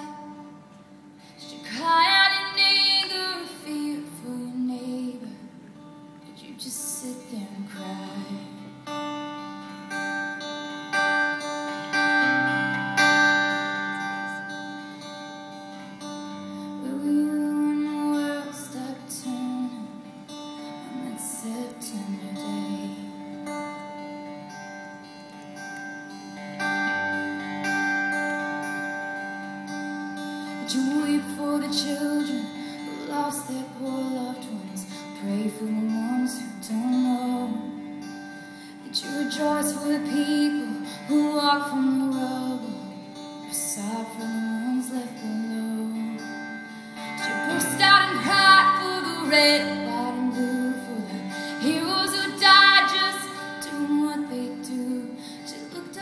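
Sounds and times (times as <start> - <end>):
woman singing a ballad: 0.0 - 0.7, 1.3 - 8.8, 16.7 - 23.4, 30.4 - 38.0, 38.6 - 56.0
acoustic guitar: 0.0 - 56.0.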